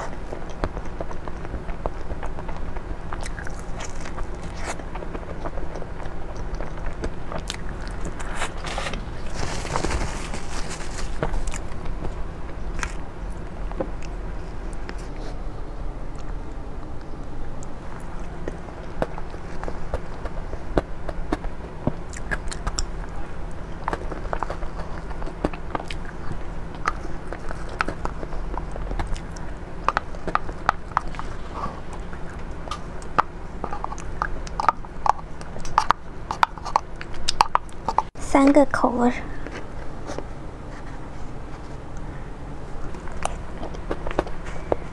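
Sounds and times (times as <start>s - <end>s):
sharp little crackles: 0.0s - 15.4s
biting and chewing: 0.0s - 38.2s, 39.4s - 44.9s
low steady hum: 0.0s - 44.9s.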